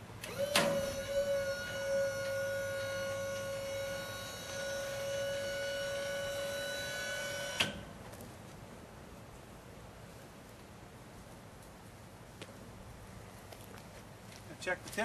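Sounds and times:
electric lift motor whining: 0:00.2 - 0:07.9.

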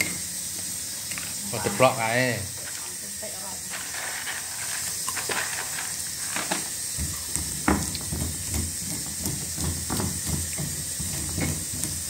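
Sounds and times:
peanuts dropped into mortar: 0:03.6 - 0:07.0
pestle knocking in stone mortar: 0:07.0 - 0:12.0.

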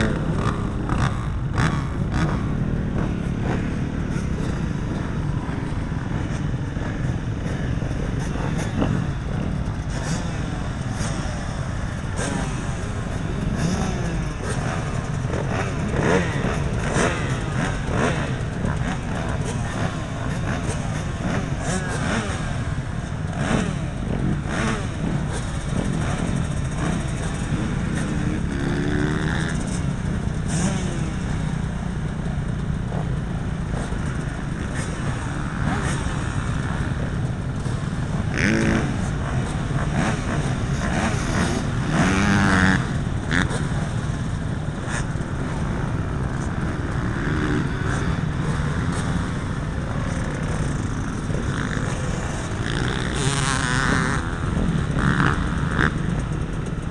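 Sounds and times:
motocross bike engines revving: 0:00.0 - 0:56.9.

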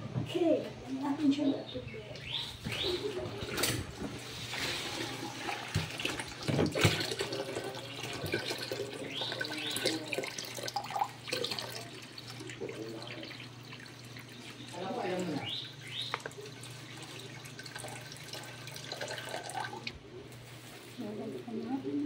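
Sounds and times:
bubbling: 0:02.6 - 0:20.3
water pouring and splashing: 0:03.4 - 0:20.0.

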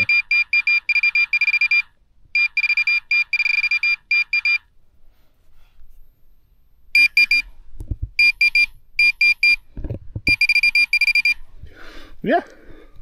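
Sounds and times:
pinpointer high-pitched beeps: 0:00.0 - 0:04.7, 0:07.0 - 0:07.5, 0:08.2 - 0:09.6, 0:10.3 - 0:11.4.

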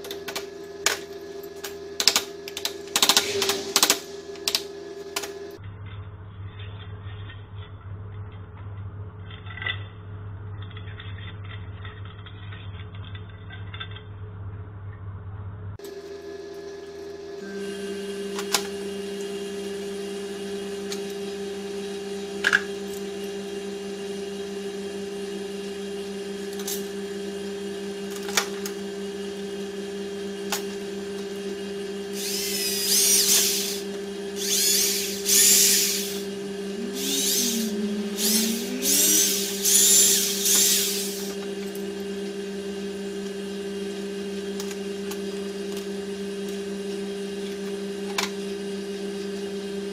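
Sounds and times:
steady low hum: 0:30.2 - 0:43.0
electric drill drilling: 0:32.0 - 0:41.9.

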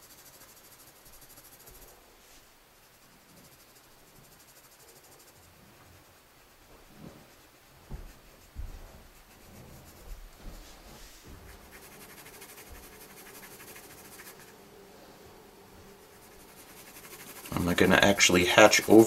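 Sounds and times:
pencil scratching on paper: 0:00.0 - 0:01.9, 0:02.8 - 0:10.6, 0:11.2 - 0:14.6, 0:15.8 - 0:19.0
soft knocks on drawing surface: 0:07.8 - 0:11.6.

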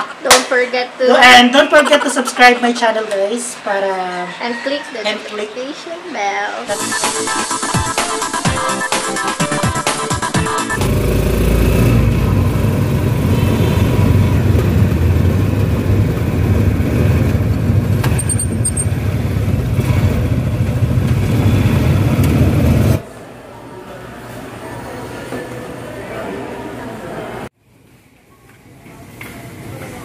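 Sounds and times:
motorcycle engine running: 0:10.7 - 0:23.0
road noise: 0:10.8 - 0:23.2.

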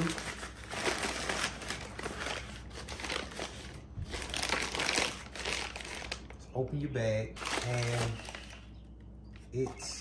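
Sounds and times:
paper bag crinkling: 0:00.0 - 0:06.5, 0:07.3 - 0:08.7.

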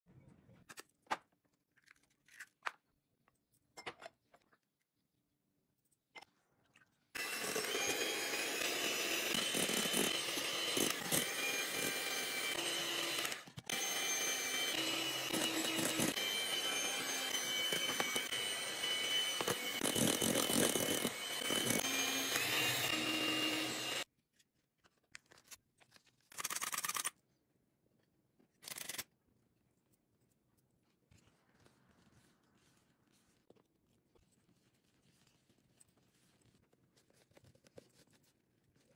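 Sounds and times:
electric hand mixer whine: 0:07.2 - 0:24.1.

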